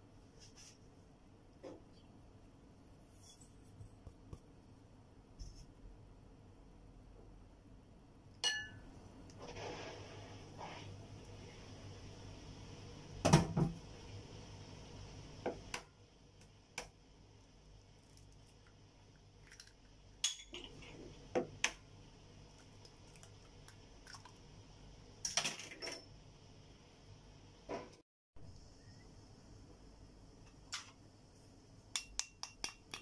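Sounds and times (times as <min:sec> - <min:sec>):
glassware clinking: 0:08.4 - 0:08.9.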